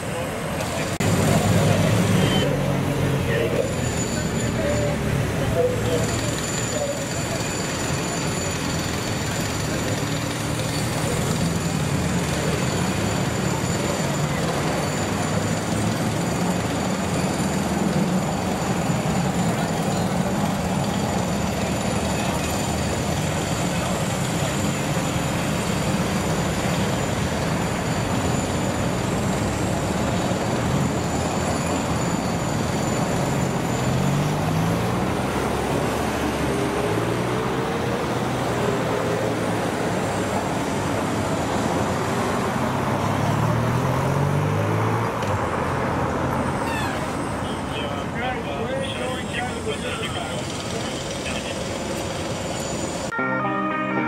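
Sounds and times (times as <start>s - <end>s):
traffic noise: 0.0s - 54.0s
engines accelerating past: 0.6s - 32.2s, 32.9s - 47.3s.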